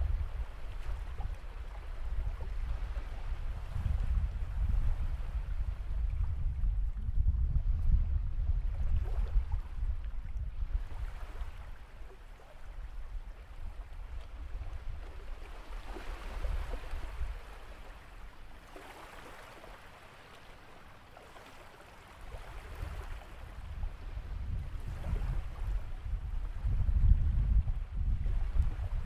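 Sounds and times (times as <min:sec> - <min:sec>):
wind rumbling on microphone: 0:00.0 - 0:18.9, 0:22.2 - 0:29.0.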